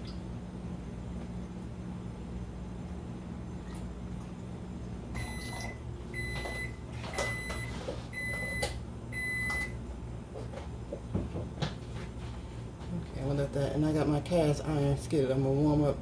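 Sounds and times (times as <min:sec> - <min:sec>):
low steady hum: 0:00.0 - 0:16.0
electronic appliance beeps: 0:05.1 - 0:09.8.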